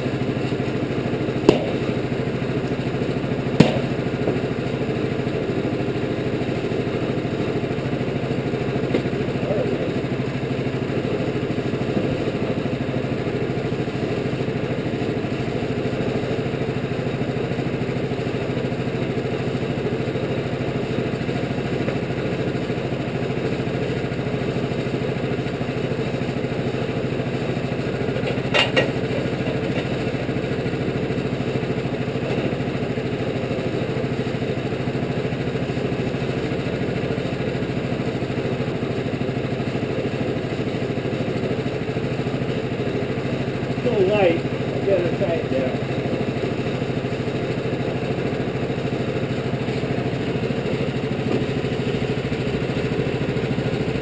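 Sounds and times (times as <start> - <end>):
bandsaw mill engine running: 0.0 - 54.0
sharp double knock: 1.4 - 2.0, 3.6 - 4.1.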